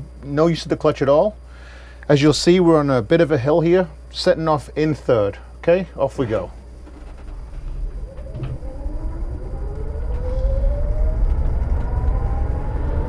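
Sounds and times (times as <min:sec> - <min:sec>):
electric drivetrain whining: 0:06.7 - 0:13.0
road and wind rumble: 0:07.2 - 0:13.0.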